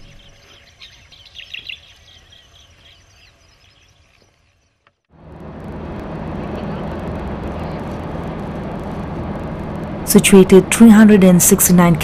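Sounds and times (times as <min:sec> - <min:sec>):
faint birds chirping: 0:00.0 - 0:05.0
road vehicle rumble: 0:04.9 - 0:12.0.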